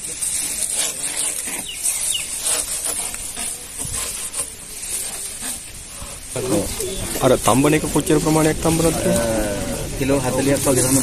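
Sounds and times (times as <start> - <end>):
grass leaves rustling: 0.0 - 11.0
bird chirping: 1.4 - 3.7, 6.4 - 8.4.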